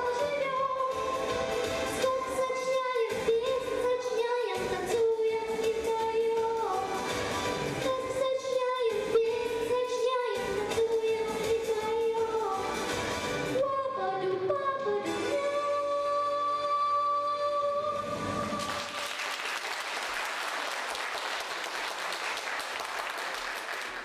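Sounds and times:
girl singing into microphone: 0.0 - 7.1, 7.7 - 12.8, 13.5 - 18.9
recorded backing music: 0.0 - 19.0.

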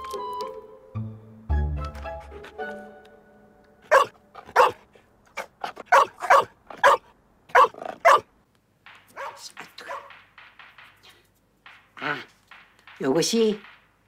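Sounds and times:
music: 0.0 - 4.3
dog barking: 3.9 - 4.8, 5.4 - 8.3, 9.1 - 10.1.

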